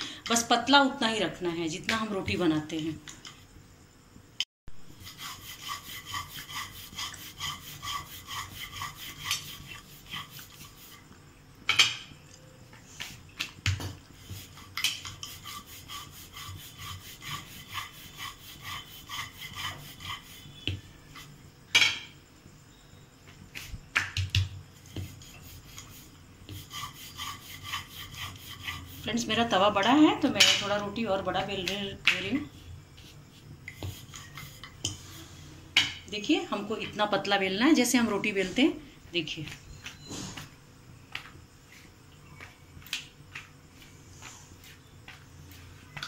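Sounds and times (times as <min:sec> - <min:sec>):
rolling pin rubbing on dough: 0:04.9 - 0:11.2, 0:12.9 - 0:21.4, 0:23.5 - 0:23.8, 0:24.7 - 0:35.6.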